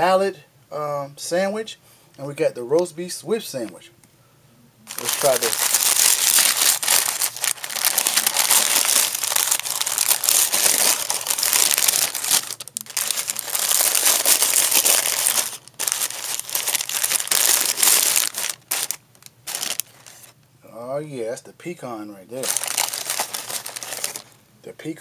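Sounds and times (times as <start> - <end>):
paper wrapper crinkling: 4.9 - 20.4, 22.4 - 24.4.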